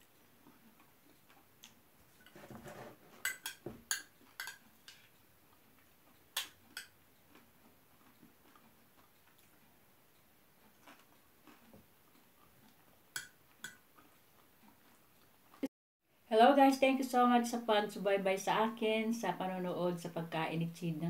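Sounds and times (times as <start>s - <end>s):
metal spoon scraping bowl: 2.2s - 5.1s.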